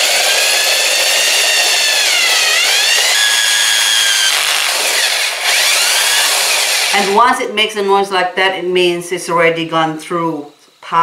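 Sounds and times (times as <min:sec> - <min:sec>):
drill grinding into ceramic: 0:00.0 - 0:07.2.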